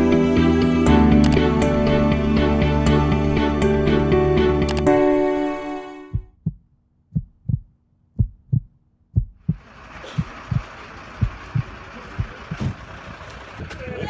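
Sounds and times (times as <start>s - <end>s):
heartbeat thumps: 6.1s - 12.8s.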